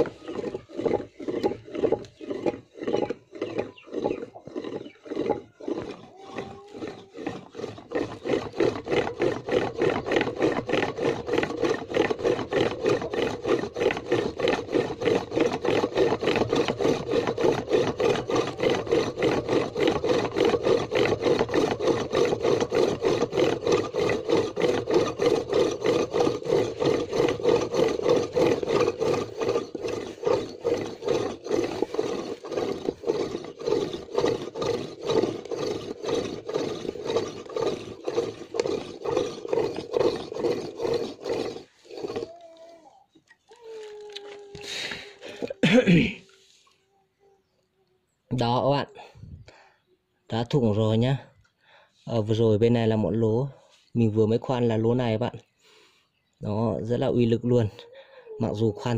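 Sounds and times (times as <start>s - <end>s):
drill bit grinding into steel: 6.7s - 42.4s.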